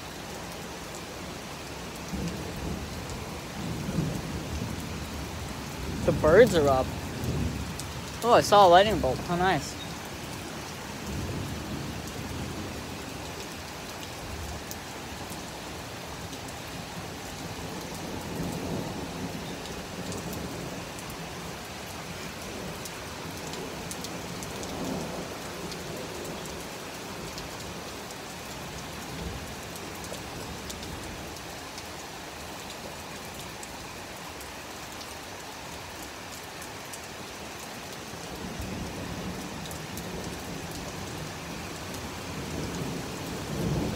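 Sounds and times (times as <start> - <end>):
heavy rain falling: 0.0 - 43.9
thunder rumbling: 2.1 - 9.8, 42.4 - 43.9.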